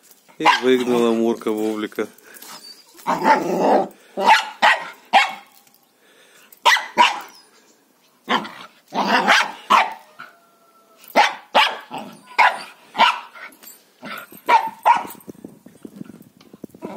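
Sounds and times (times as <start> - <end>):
dog barking: 0.4 - 0.8, 4.2 - 5.4, 6.6 - 7.3, 8.3 - 10.1, 11.1 - 13.4, 14.5 - 15.1.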